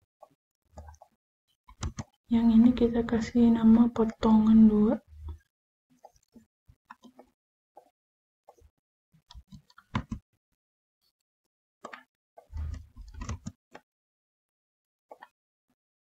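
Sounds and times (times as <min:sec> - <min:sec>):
mouse and keyboard clicks: 0:01.7 - 0:02.2, 0:09.3 - 0:10.2, 0:11.8 - 0:13.8.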